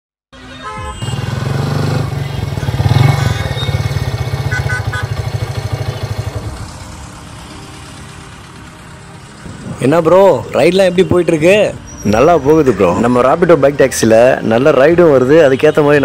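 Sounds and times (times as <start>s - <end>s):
motorcycle engine running: 1.0s - 8.8s.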